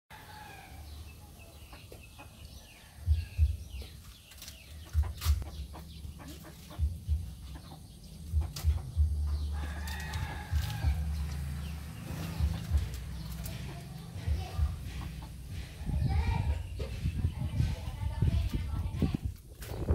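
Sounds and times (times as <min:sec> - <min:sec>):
chickens clucking: 0:00.2 - 0:19.9
low thumps on microphone: 0:03.1 - 0:03.9, 0:06.7 - 0:07.6, 0:14.2 - 0:19.9.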